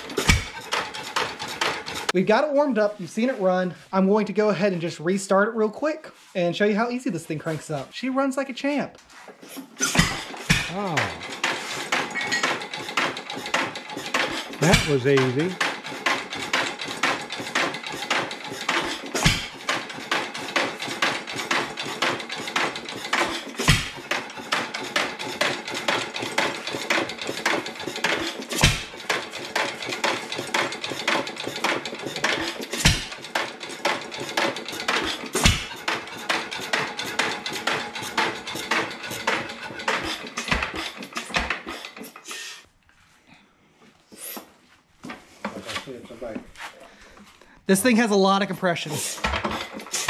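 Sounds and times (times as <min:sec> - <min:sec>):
flywheel mechanical clatter: 0:00.0 - 0:02.2, 0:09.8 - 0:42.3, 0:48.9 - 0:50.0
engine firing stroke: 0:09.8 - 0:42.2.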